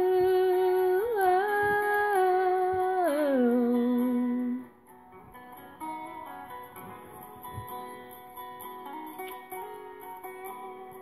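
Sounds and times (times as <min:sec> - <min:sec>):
woman singing a long note: 0:00.0 - 0:04.7
guitar backing music: 0:00.0 - 0:11.0.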